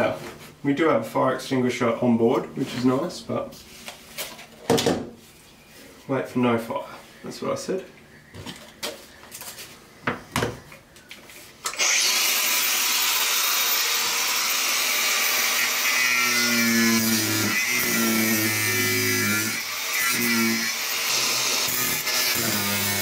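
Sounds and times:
angle grinder whining: 0:11.6 - 0:23.0
grinder disc cutting screws: 0:11.6 - 0:23.0.

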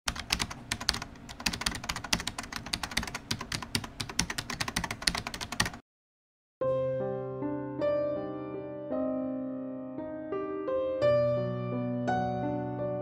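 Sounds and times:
computer keyboard typing: 0:00.1 - 0:05.8.

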